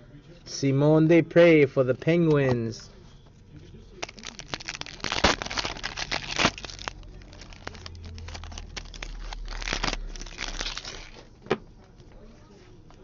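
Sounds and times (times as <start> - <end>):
foil wrapper crinkling and tearing: 4.0 - 11.3.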